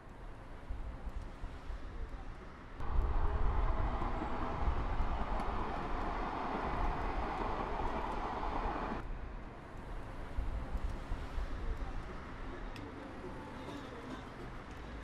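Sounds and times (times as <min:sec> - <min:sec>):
passing motor traffic: 0:02.8 - 0:09.0.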